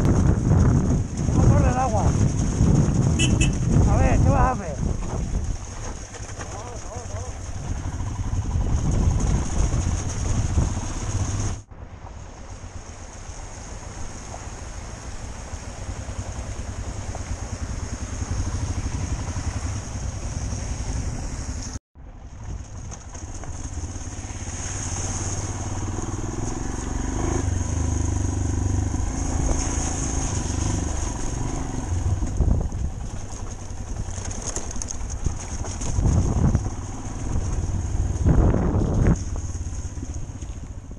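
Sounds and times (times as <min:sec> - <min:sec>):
wind noise on microphone: 0:00.0 - 0:06.5, 0:07.4 - 0:12.8, 0:15.9 - 0:40.9
motorcycle engine rumble: 0:00.0 - 0:40.9.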